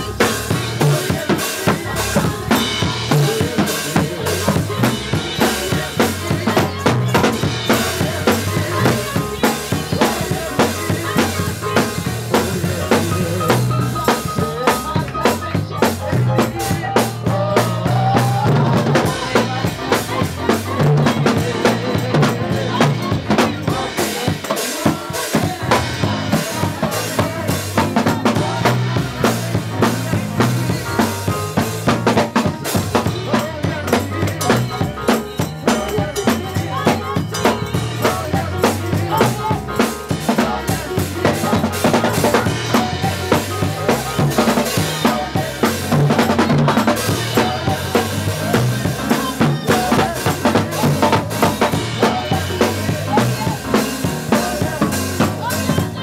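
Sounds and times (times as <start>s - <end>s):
drum kit: 0.0s - 56.0s
keyboard: 0.0s - 56.0s
woman singing: 0.0s - 56.0s
tambourine jingling: 19.0s - 56.0s.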